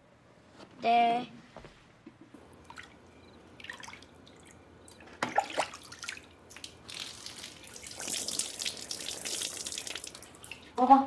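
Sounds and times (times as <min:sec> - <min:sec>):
water sloshing in plastic basin: 0:03.6 - 0:08.2
water dripping: 0:03.6 - 0:10.9
water pouring from pot: 0:06.9 - 0:10.8.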